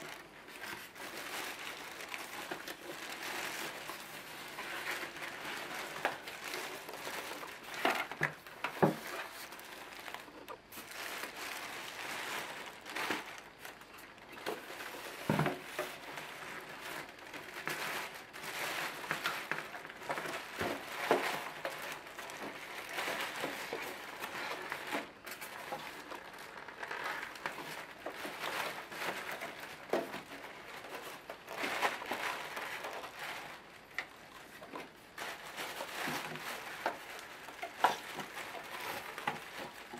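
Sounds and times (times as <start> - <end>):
plastic bag crinkling: 0.0 - 39.9.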